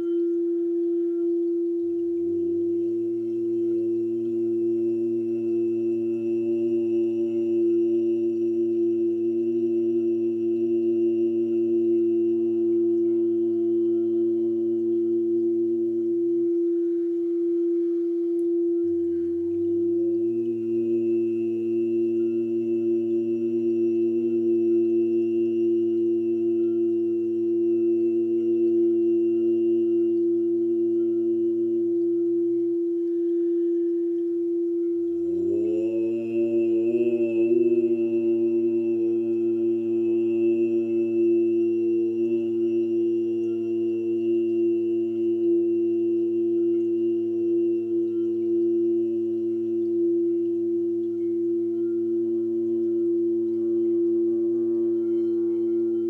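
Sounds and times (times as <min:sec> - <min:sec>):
steady drone tone: 0:00.0 - 0:56.0
man chanting low held notes: 0:35.3 - 0:42.7.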